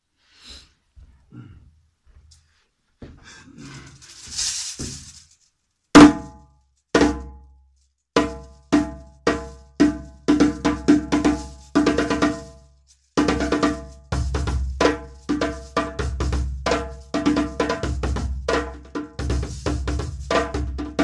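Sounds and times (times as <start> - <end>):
rustling and shuffling: 0.0 - 6.0, 7.6 - 9.6, 11.1 - 16.2.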